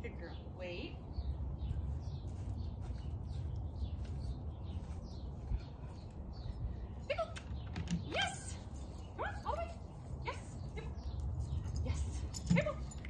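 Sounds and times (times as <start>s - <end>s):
steady low rumble: 0.0s - 7.2s
small birds chirping: 0.0s - 13.0s.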